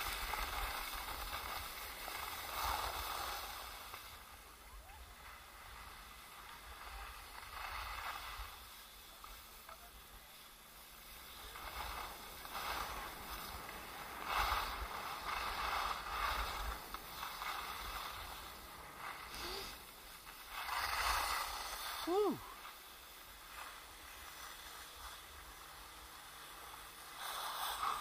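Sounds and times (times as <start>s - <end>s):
skis scraping over snow: 0.0s - 28.0s.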